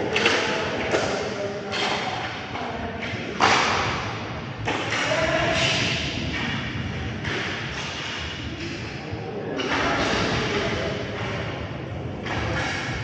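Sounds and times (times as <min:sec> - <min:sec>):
puck and sticks knocking boards: 0:00.0 - 0:08.9, 0:12.2 - 0:13.0.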